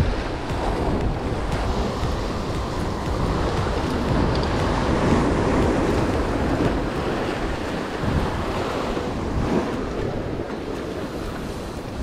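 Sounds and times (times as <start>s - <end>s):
sea surf: 0.0s - 12.0s
wind buffeting microphone: 0.0s - 12.0s.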